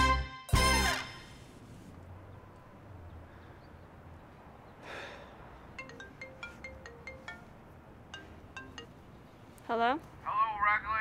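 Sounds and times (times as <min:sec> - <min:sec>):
marimba phone ringtone: 0:05.8 - 0:09.2.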